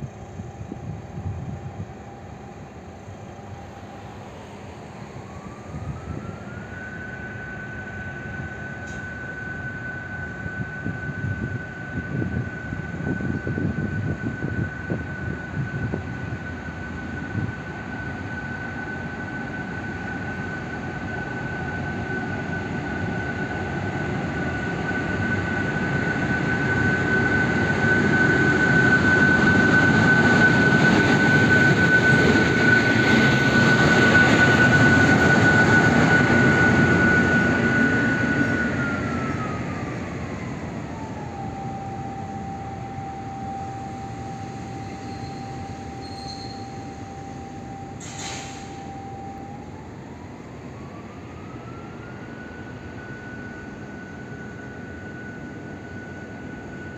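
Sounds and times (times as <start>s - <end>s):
diesel locomotive engine: 0.0s - 56.9s
high-pitched whine: 0.0s - 56.9s.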